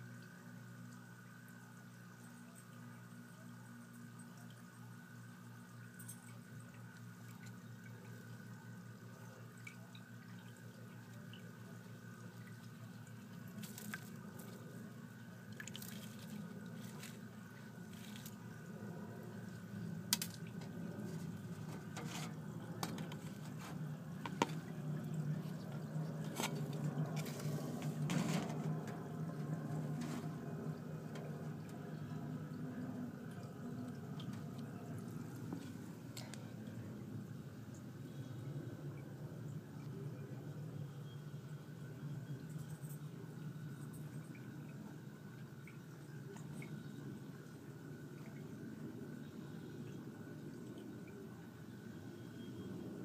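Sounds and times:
low hum: 0:00.0 - 0:53.0.

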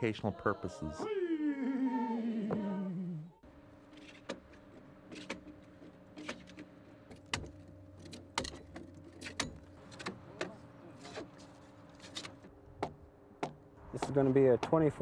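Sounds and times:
man chanting: 0:00.0 - 0:02.1.

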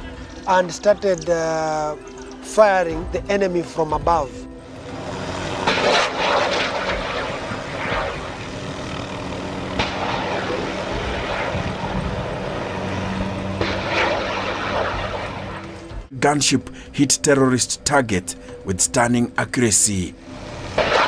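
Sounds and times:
helicopter rotor and engine drone: 0:00.0 - 0:21.0
helicopter weapons firing: 0:05.4 - 0:16.0, 0:20.7 - 0:21.0
sharp crack: 0:05.6 - 0:08.6, 0:09.7 - 0:12.1, 0:13.6 - 0:15.8, 0:20.8 - 0:21.0.

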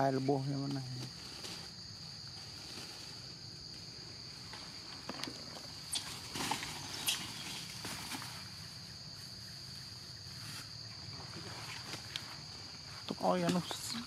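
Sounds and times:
insect chorus drone: 0:00.0 - 0:14.0
rustles and clicks: 0:00.6 - 0:09.4.

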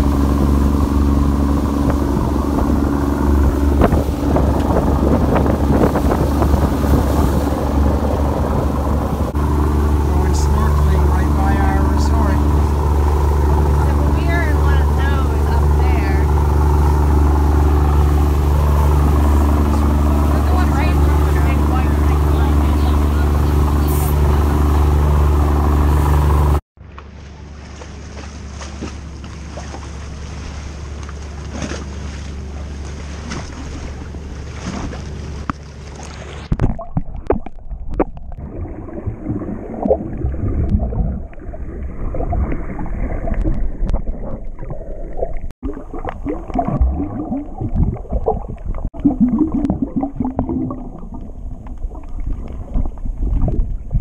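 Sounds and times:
underwater exhaust bubbles gurgling: 0:00.0 - 0:26.6, 0:29.1 - 0:54.0
boat engine running loudly: 0:00.0 - 0:36.5.

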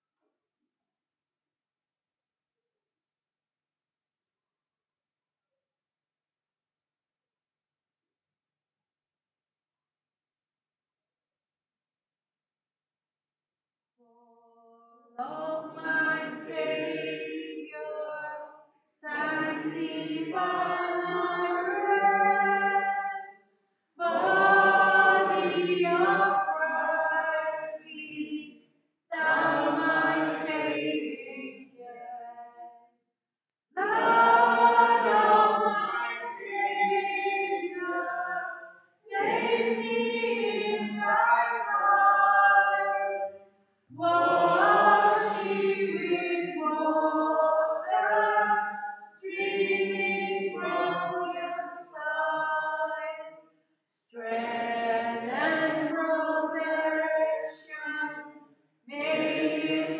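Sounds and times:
choir singing a hymn: 0:15.2 - 0:18.2, 0:19.0 - 0:23.2, 0:24.0 - 0:28.4, 0:29.1 - 0:31.6, 0:33.8 - 0:38.5, 0:39.1 - 0:43.2, 0:43.9 - 0:53.0, 0:54.2 - 0:58.0, 0:58.9 - 0:59.9.

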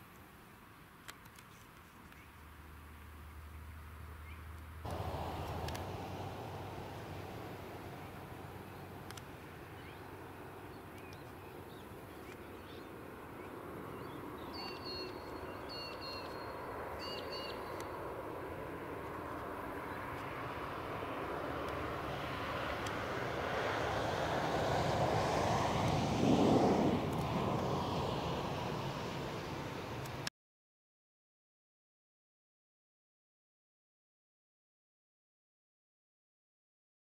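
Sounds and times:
distant vehicle engine approaching: 0:04.2 - 0:12.0, 0:15.7 - 0:30.3
short chirping bird calls: 0:10.7 - 0:17.9.

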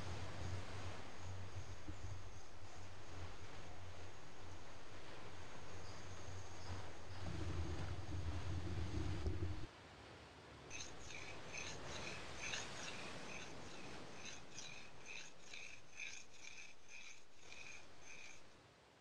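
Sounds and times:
crickets chirping: 0:00.0 - 0:09.7, 0:10.7 - 0:18.5
low steady hum: 0:00.0 - 0:09.7, 0:10.5 - 0:19.0
steady hiss: 0:00.0 - 0:09.7.

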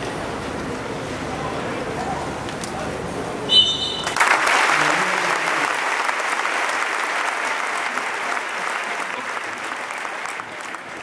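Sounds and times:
stadium crowd applauding: 0:04.0 - 0:11.0.

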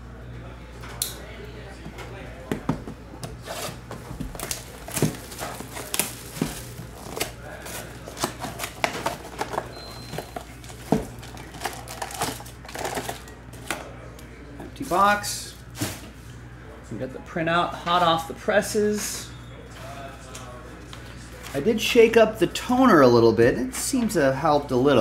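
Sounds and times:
foil packs rustling: 0:03.4 - 0:13.8
plastic wrap crinkling and tearing: 0:03.5 - 0:13.7.

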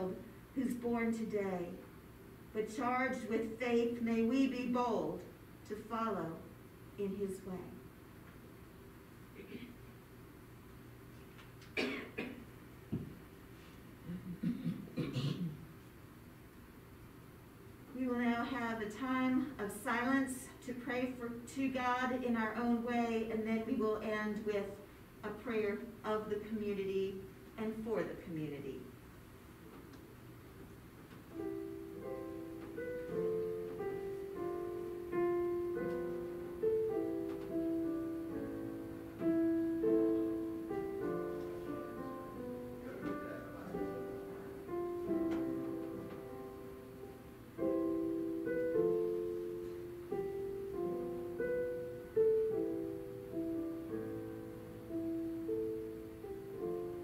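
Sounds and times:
slow gentle piano piece: 0:29.8 - 0:57.0.

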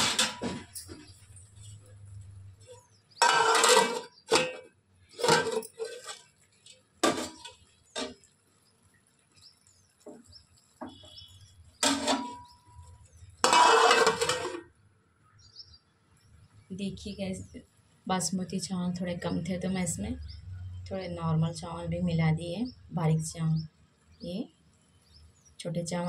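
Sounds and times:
pots and utensils clattering: 0:00.0 - 0:01.8, 0:02.6 - 0:06.4, 0:07.0 - 0:08.3, 0:11.8 - 0:14.7.

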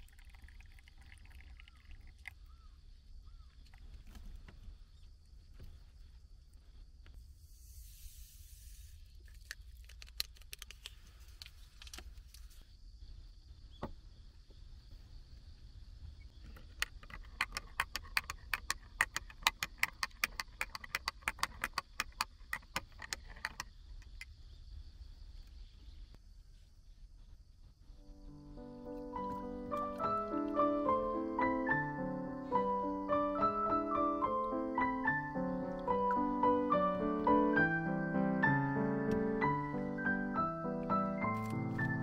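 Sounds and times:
short hiss: 0:07.2 - 0:09.2.

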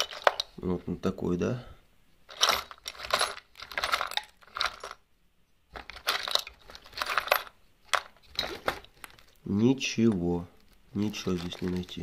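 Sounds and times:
metal hardware rattling in box: 0:00.0 - 0:00.6, 0:02.3 - 0:05.0, 0:05.8 - 0:09.3, 0:11.1 - 0:12.0.

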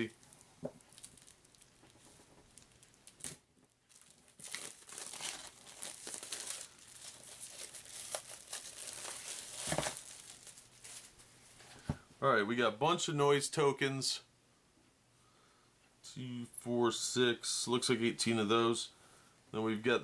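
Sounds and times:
packaging crinkling: 0:00.0 - 0:11.2.

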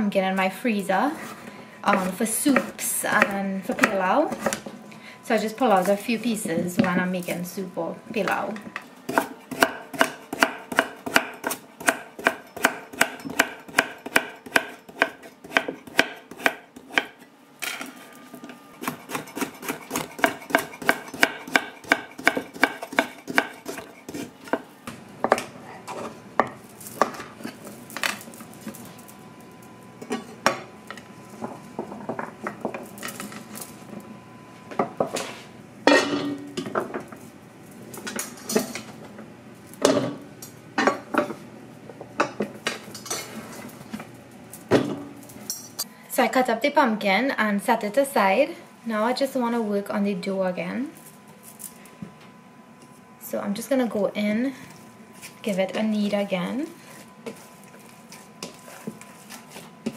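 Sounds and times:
knife chopping on wooden board: 0:09.1 - 0:17.1, 0:18.8 - 0:24.7.

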